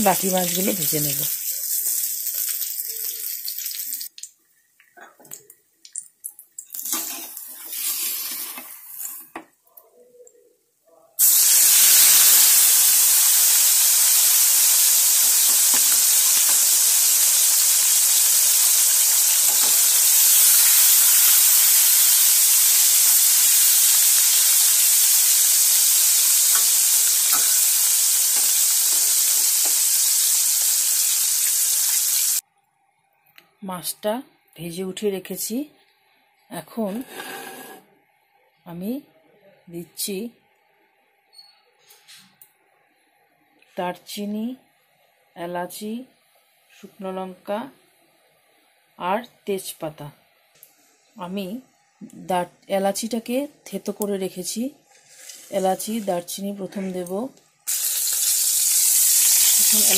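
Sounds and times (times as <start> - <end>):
fish sizzling in hot oil: 0.0 - 4.3, 6.8 - 9.2, 11.2 - 32.4, 54.9 - 56.2, 57.7 - 59.9.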